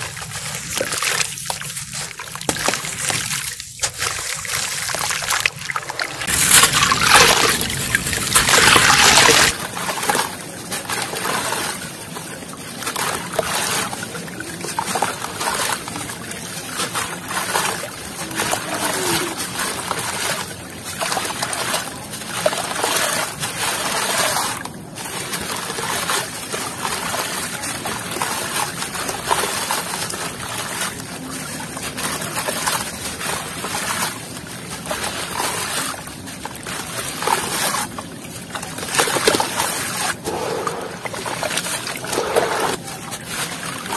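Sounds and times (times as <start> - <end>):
sand splashing into water: 0.0 - 12.3
hands squishing wet mud: 0.0 - 43.9.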